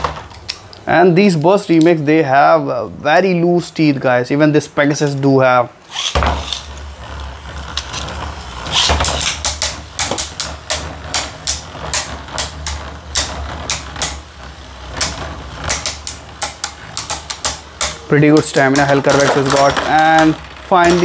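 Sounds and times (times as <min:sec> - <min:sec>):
spinning tops humming: 0:05.8 - 0:21.0
spinning tops clacking together: 0:08.6 - 0:21.0.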